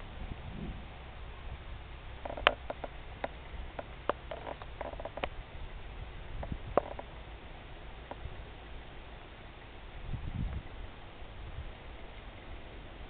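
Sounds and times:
storm wind rumbling on microphone: 0.0 - 1.6, 3.4 - 7.1, 9.9 - 12.1.

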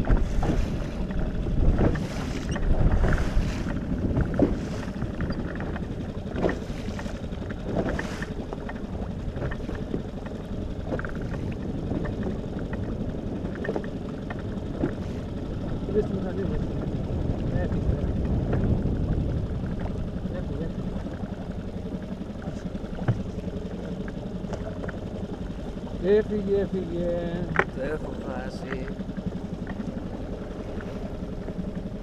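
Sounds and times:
wind on microphone: 0.0 - 10.0, 14.7 - 21.3
water splashing against boat hull: 0.0 - 32.0.

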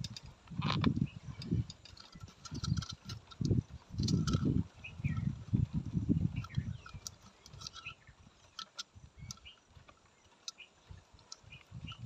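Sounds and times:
bird chirps: 4.8 - 5.3, 6.2 - 8.6, 9.2 - 12.0.

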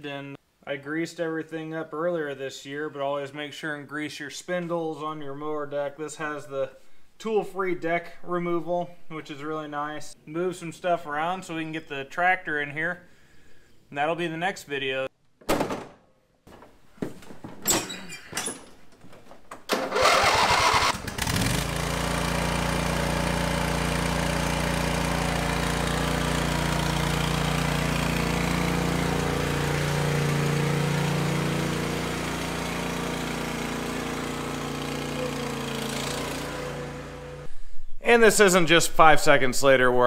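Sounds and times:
lawn tractor engine cranking and running: 19.1 - 37.5.

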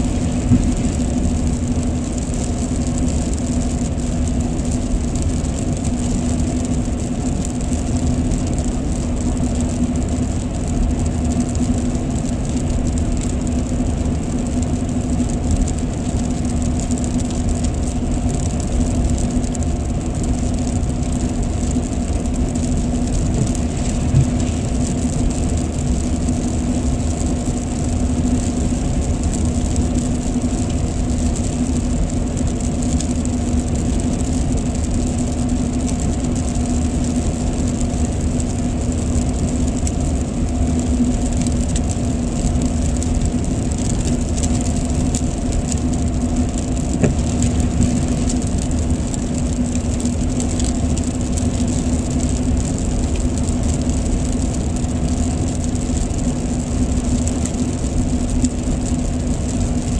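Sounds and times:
car cabin road noise: 0.0 - 30.2, 41.3 - 53.0
engine and tyres droning: 0.0 - 59.9.

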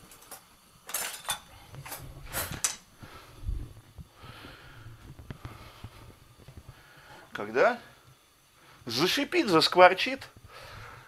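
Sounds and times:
metal utensils rattling in drawer: 0.9 - 2.8.

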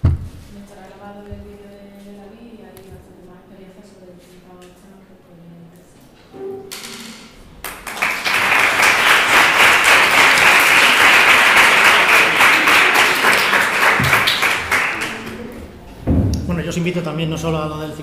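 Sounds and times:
students applauding: 7.6 - 15.6.

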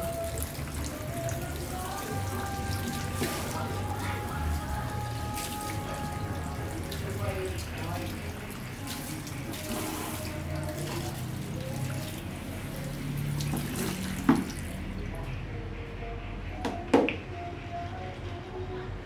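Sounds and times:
water running at a basin: 0.0 - 15.3
hands scrubbing lathered hair: 1.2 - 14.8.

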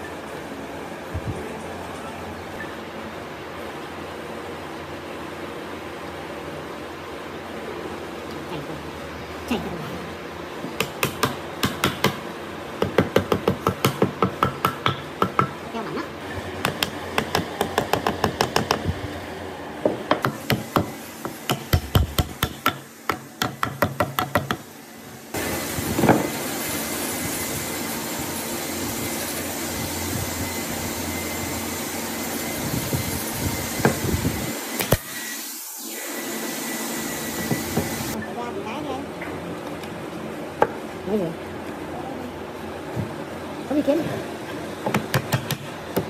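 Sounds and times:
hammer tapping on wood: 10.8 - 12.2, 12.8 - 15.6, 16.6 - 18.9.

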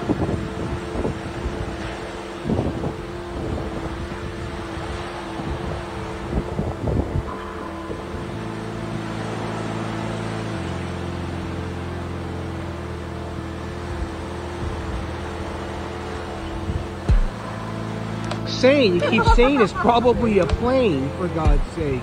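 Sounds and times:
constant noise wash: 0.0 - 22.0
low droning hum: 0.0 - 22.0
wind thumps on microphone: 16.7 - 17.4.

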